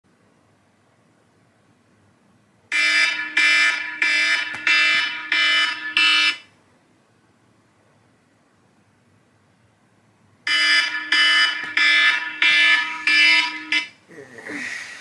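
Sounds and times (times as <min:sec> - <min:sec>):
phone alarm buzzy pulses: 0:02.7 - 0:06.4, 0:10.5 - 0:14.0.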